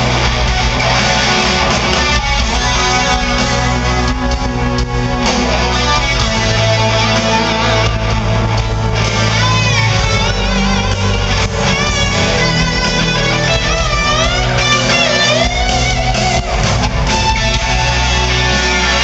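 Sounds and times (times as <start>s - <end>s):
electric guitar solo: 0.0s - 19.0s
live rock band playing: 0.0s - 19.0s.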